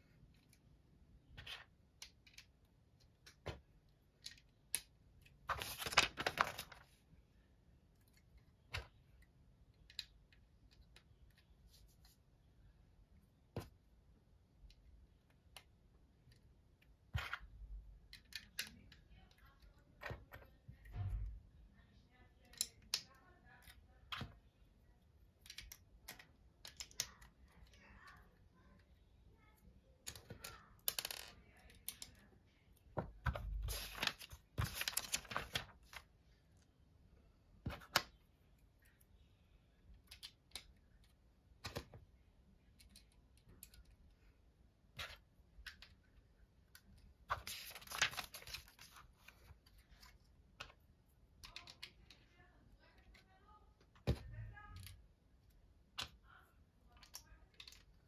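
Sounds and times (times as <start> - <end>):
plastic pieces clicking on table: 17.2 - 20.1, 25.4 - 27.8, 30.0 - 32.2, 51.4 - 52.2, 57.0 - 58.0.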